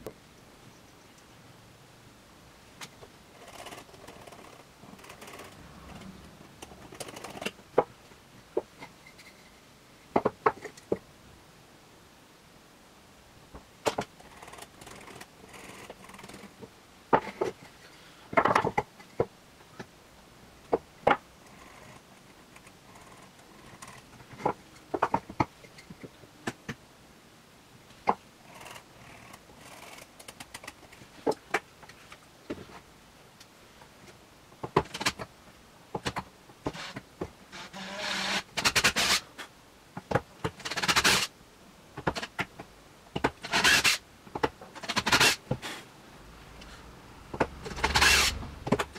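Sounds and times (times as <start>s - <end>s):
cordless drill drilling into wood: 47.9s - 48.4s.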